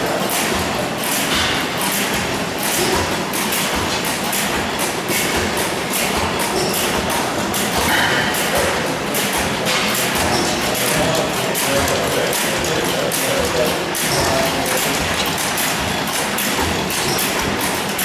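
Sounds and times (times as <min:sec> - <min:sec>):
gas engines running: 0:00.0 - 0:18.0.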